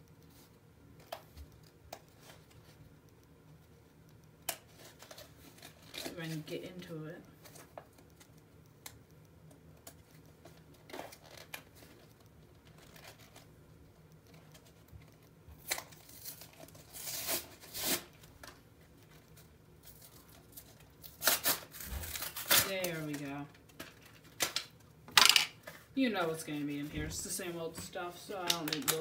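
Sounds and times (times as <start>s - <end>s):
plastic wrapper tearing and crinkling: 4.5s - 6.4s, 10.4s - 13.5s, 15.6s - 18.6s, 19.9s - 25.4s.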